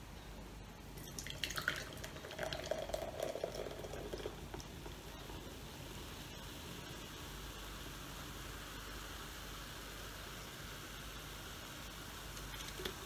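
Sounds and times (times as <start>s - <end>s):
soda gurgling into glass: 1.0s - 5.0s
soda fizzing: 1.0s - 9.6s, 10.4s - 13.0s.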